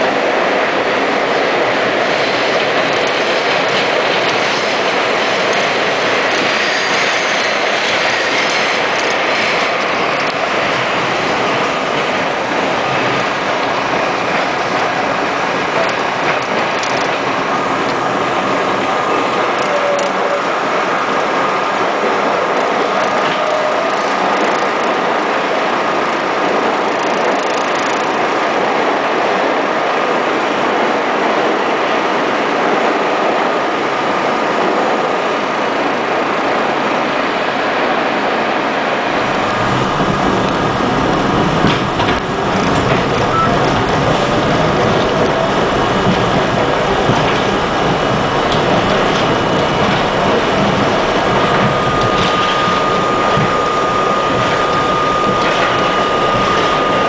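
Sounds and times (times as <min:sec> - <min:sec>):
train wheels rumbling on rail: 0:00.0 - 0:57.0
high whine: 0:39.1 - 0:57.0.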